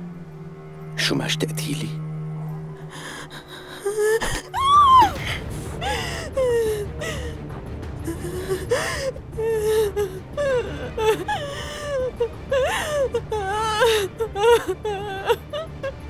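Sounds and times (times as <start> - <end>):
dramatic music underscore: 0.0 - 16.0
person whimpering and sobbing: 2.9 - 7.4, 8.1 - 16.0.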